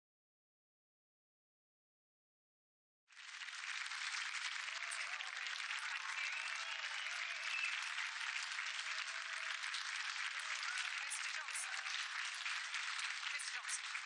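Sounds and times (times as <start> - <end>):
audience applause: 3.1 - 14.0.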